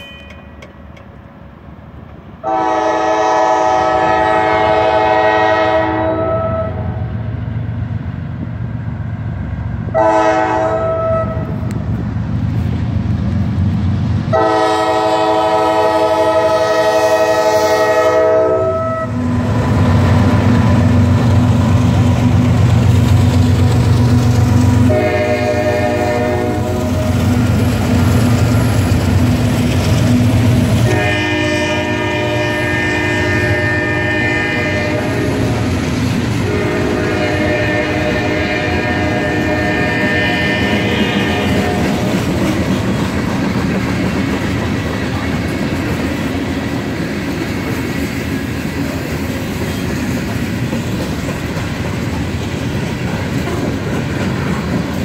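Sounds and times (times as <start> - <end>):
locomotive horn blasts: 0.0 - 0.6, 2.4 - 7.0, 9.9 - 11.7, 14.3 - 19.3, 24.8 - 27.1, 30.8 - 35.6, 36.4 - 42.1
train wheels clacking on rails: 0.0 - 1.3, 19.3 - 55.0
diesel locomotives rumbling: 0.0 - 55.0.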